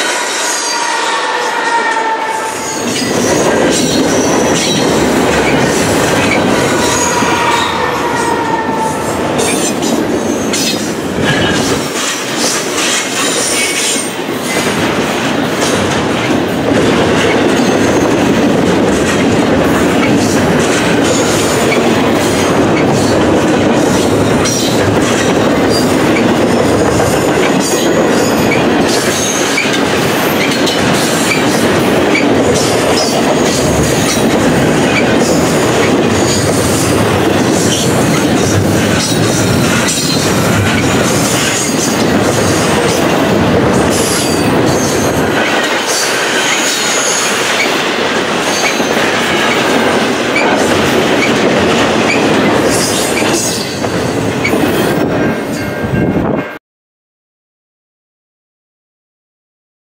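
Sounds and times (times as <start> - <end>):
high wheel squeal: 0.0 - 4.8, 5.4 - 11.6
rhythmic rail clicking: 0.0 - 56.6
train wheels on rail: 0.0 - 56.6.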